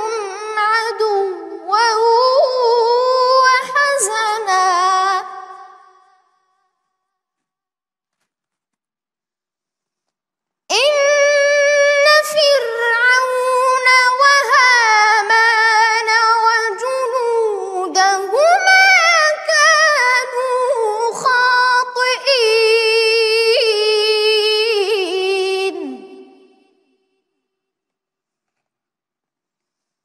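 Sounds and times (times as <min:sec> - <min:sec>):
boy reciting melodically: 0:00.0 - 0:05.9, 0:10.7 - 0:26.4.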